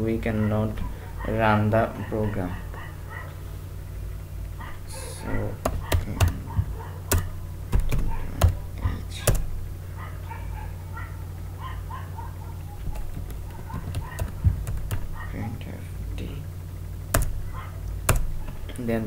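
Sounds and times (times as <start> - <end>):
steady low hum: 0.0 - 19.0
keyboard keystrokes: 5.6 - 9.6, 12.8 - 15.2, 17.1 - 18.8.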